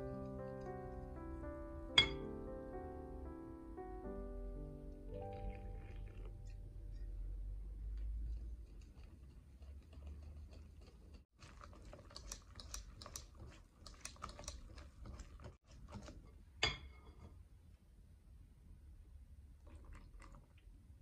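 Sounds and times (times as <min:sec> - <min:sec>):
whisk clinking against glass: 0:02.0 - 0:02.2
whisk stirring batter: 0:06.2 - 0:17.2.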